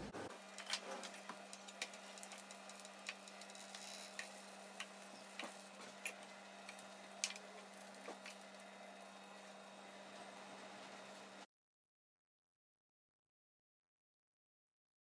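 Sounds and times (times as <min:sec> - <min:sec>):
faint steady hum: 0:00.0 - 0:11.5.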